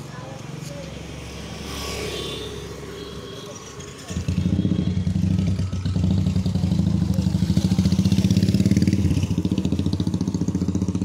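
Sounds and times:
motorcycle engine running: 0:03.6 - 0:11.0.

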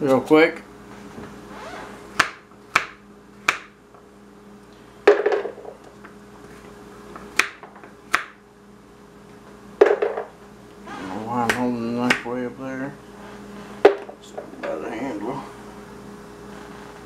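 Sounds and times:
knife chopping on wooden board: 0:02.2 - 0:03.7, 0:07.3 - 0:08.4.

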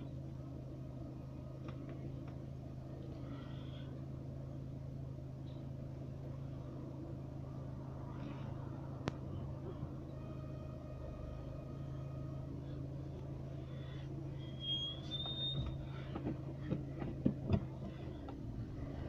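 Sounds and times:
car engine and road hum: 0:00.0 - 0:19.0
thin high squeak: 0:14.4 - 0:15.8.

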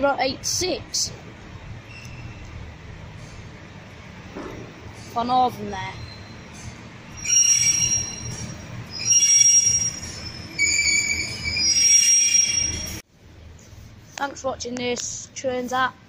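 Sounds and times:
train wheels squealing: 0:05.7 - 0:13.0.

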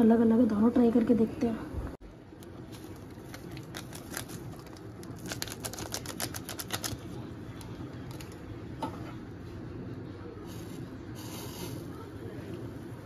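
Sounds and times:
noodle cup packaging crackling: 0:02.4 - 0:08.5.

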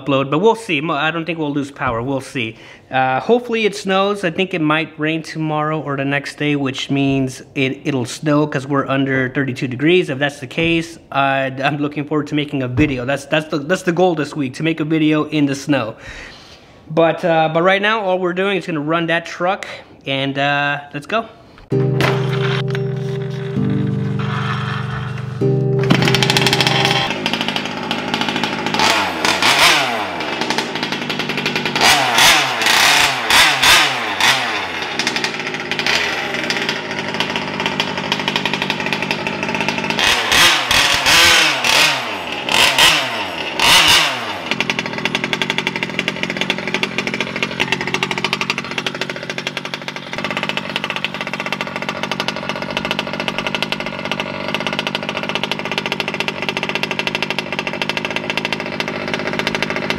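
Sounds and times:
small two-stroke engine revving: 0:22.0 - 0:59.9.

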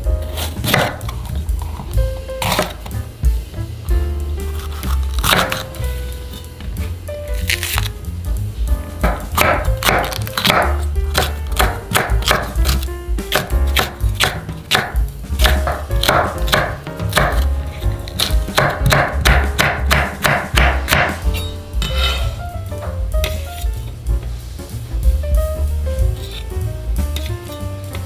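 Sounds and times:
knife slicing on wooden board: 0:00.3 - 0:02.9, 0:04.5 - 0:05.7, 0:20.9 - 0:22.4, 0:26.2 - 0:26.4.

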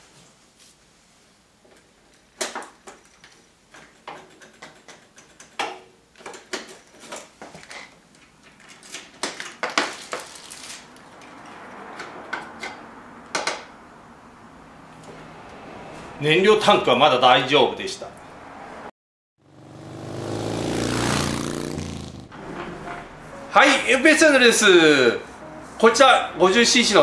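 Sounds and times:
plastic and metal parts rattling: 0:06.2 - 0:10.9.

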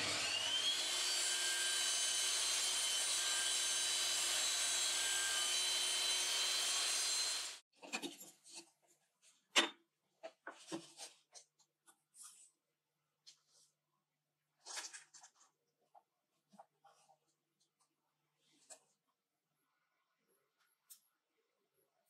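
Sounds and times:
table saw cutting wood: 0:00.0 - 0:07.6.

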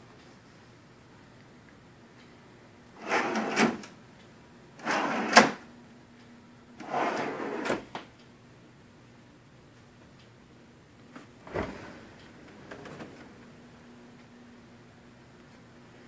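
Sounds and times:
wooden shelves sliding on runners: 0:03.0 - 0:03.9, 0:04.8 - 0:05.6, 0:06.8 - 0:07.9, 0:11.4 - 0:13.5.

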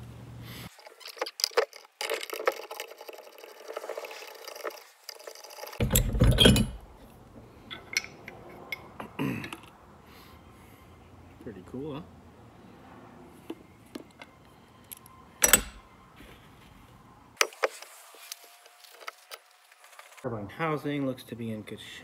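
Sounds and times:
metal clinking and scraping: 0:00.7 - 0:09.7, 0:13.4 - 0:15.9.

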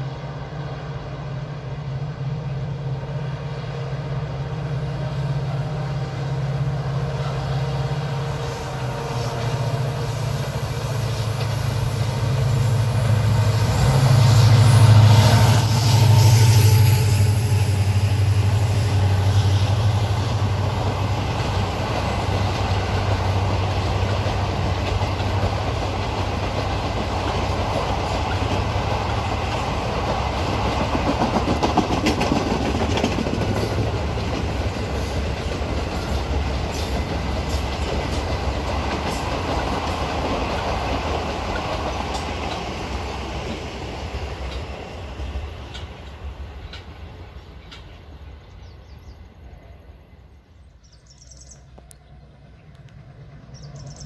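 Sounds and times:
locomotive hum: 0:00.0 - 0:54.0
train wheels clacking over rail joints: 0:17.8 - 0:48.1.

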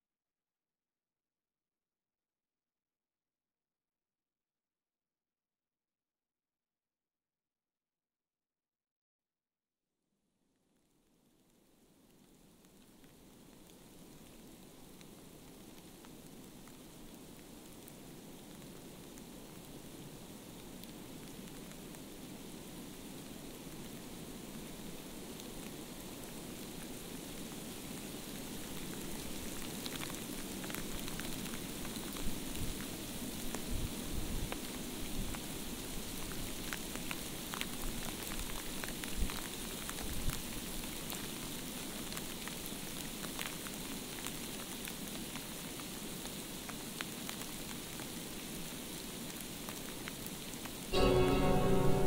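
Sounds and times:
steady rain hiss: 0:11.2 - 0:52.0.

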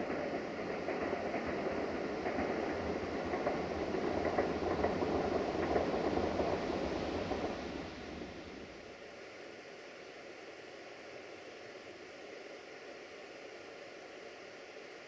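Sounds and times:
diesel locomotive engine: 0:00.0 - 0:09.5.

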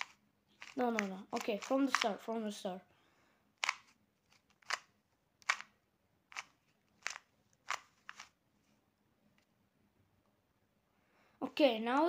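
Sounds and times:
puzzle cube plastic clicks: 0:00.0 - 0:02.3, 0:03.6 - 0:08.4.

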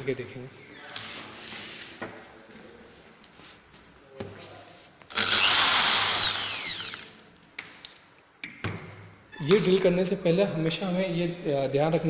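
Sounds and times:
electric drill boring into plywood: 0:05.1 - 0:07.1.

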